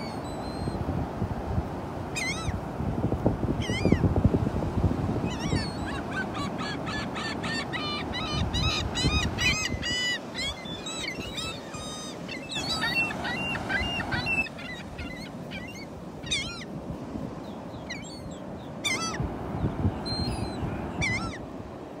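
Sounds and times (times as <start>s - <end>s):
surf washing: 0.0s - 22.0s
gulls calling: 2.1s - 2.6s, 5.2s - 16.8s, 17.4s - 21.9s.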